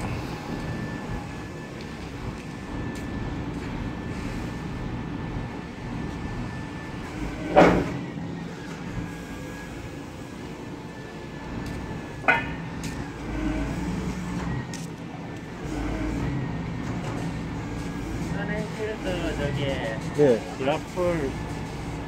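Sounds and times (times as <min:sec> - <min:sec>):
diesel engine running: 0:00.0 - 0:22.0
hydraulic boom and grapple working: 0:00.0 - 0:22.0
sharp metal clunks: 0:12.2 - 0:12.6.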